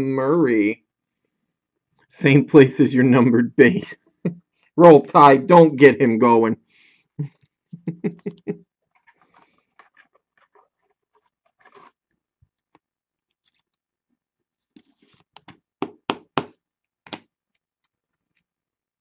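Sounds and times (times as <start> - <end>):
cards rustling on a table: 13.3 - 13.7, 14.8 - 15.6.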